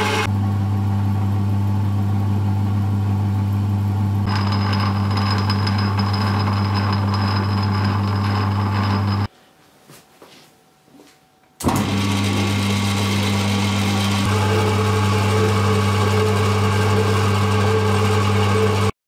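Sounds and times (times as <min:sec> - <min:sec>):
lathe motor humming: 0:04.3 - 0:09.3, 0:11.6 - 0:18.9.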